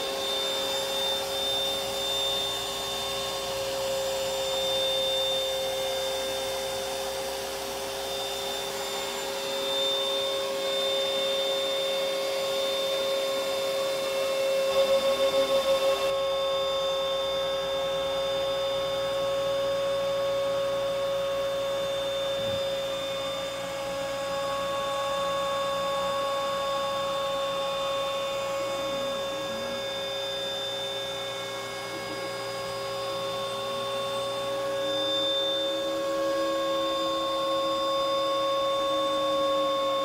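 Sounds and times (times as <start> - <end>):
stepper motor tones: 0.0 - 18.5
router whining cutting wood: 0.0 - 40.0.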